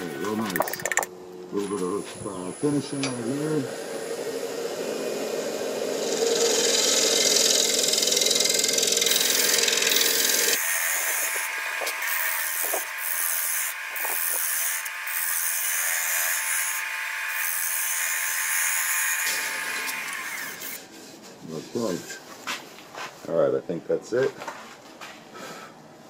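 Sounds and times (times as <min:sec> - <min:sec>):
lathe tool cutting wood bowl: 0:02.6 - 0:20.8.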